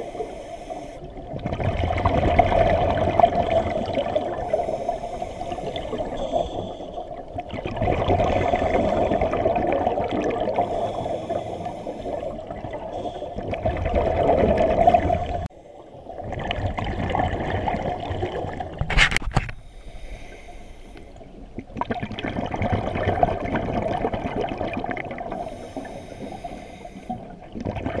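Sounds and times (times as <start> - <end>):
underwater bubbles from regulator: 1.0 - 4.9, 5.5 - 11.4, 12.0 - 15.5, 16.1 - 18.8, 21.5 - 25.6, 27.1 - 28.0.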